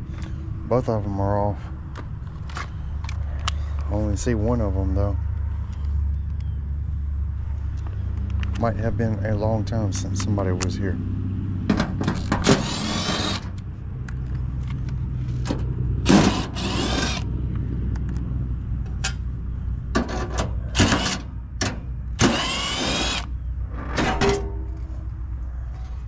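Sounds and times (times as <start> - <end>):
steady low hum: 0.0 - 26.0
power driver whining: 11.7 - 13.7, 15.4 - 17.6, 20.0 - 24.5.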